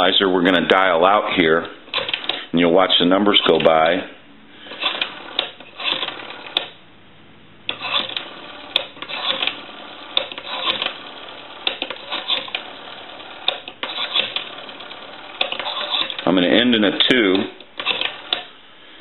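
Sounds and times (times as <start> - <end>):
rotary telephone dial clicking: 1.9 - 2.4, 4.7 - 6.8, 7.7 - 16.3, 17.4 - 18.5.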